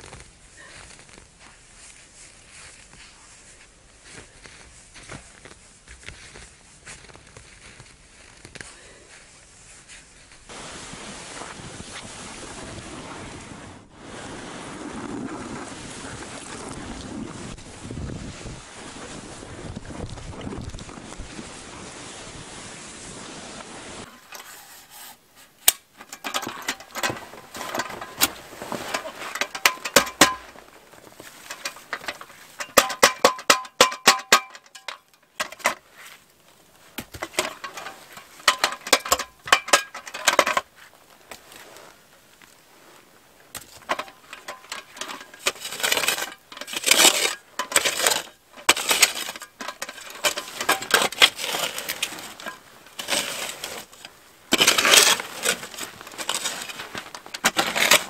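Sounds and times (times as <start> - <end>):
wind noise on microphone: 10.4 - 24.1.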